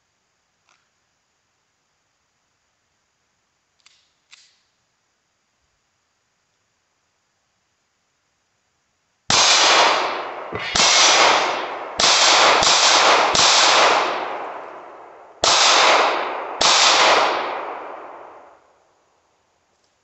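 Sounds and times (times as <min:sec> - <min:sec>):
handgun shots echoing: 0:09.3 - 0:18.6.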